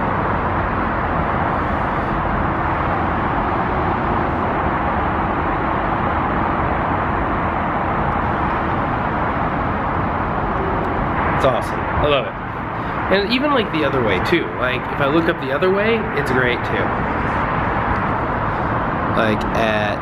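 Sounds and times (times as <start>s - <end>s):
distant city traffic hum: 0.0s - 20.0s
faint steady tone: 8.0s - 13.2s.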